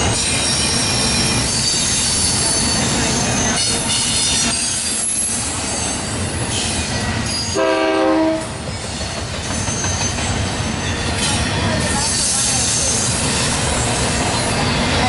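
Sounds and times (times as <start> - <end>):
freight train wheels rumbling: 0.0 - 15.0
train horn blast: 7.6 - 8.6
high wheel squeal: 8.7 - 15.0.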